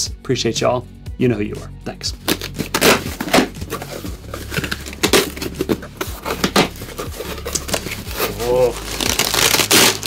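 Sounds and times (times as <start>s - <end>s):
packing tape ripping off cardboard: 2.2s - 10.0s.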